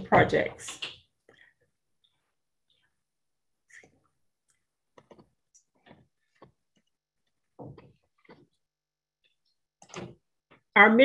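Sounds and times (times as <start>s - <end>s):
faint clicks and taps: 3.7s - 8.6s.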